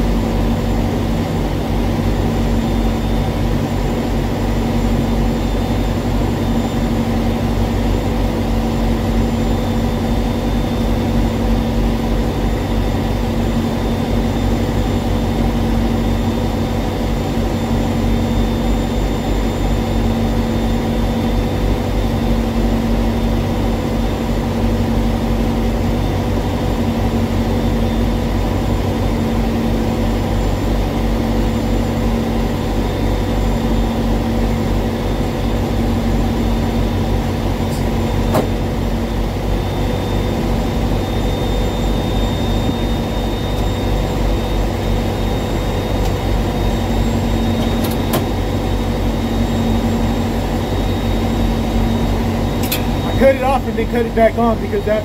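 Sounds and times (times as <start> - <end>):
diesel engine idling: 36.2 - 55.0.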